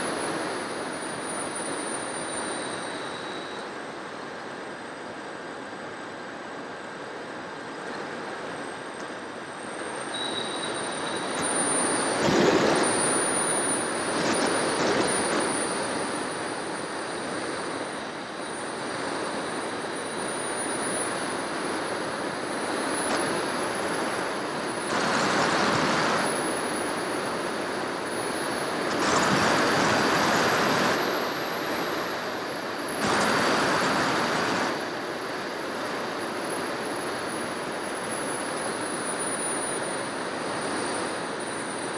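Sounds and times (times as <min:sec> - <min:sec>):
high electric motor whine: 0:00.0 - 0:41.9
wind rushing past camera: 0:00.0 - 0:41.9.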